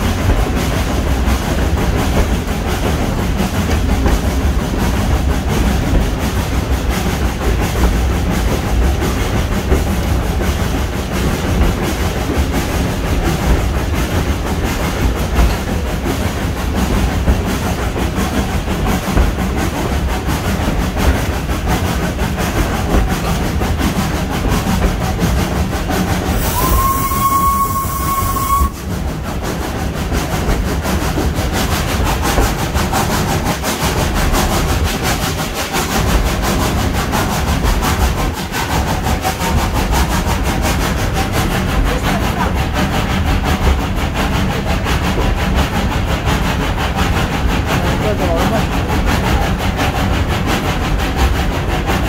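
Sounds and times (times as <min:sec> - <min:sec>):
steam train rumbling on rails: 0:00.0 - 0:52.0
steam whistle: 0:26.4 - 0:28.8.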